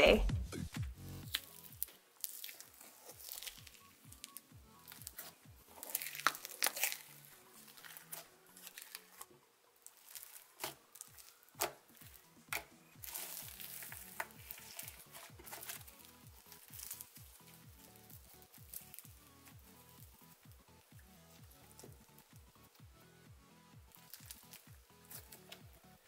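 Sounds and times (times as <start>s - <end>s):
electronic music with kick drum: 0.0s - 1.4s, 19.1s - 23.9s
background music with steady beat: 0.0s - 26.0s
slime crackling: 1.2s - 22.7s, 23.9s - 26.0s.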